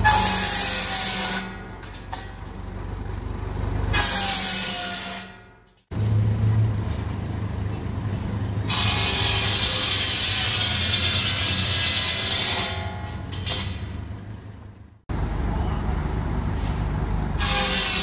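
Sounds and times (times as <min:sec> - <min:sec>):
circular saw cutting log: 0:00.0 - 0:02.4, 0:08.7 - 0:13.8, 0:17.4 - 0:18.0
tractor engine humming: 0:00.0 - 0:05.0, 0:05.7 - 0:08.7, 0:12.8 - 0:18.0.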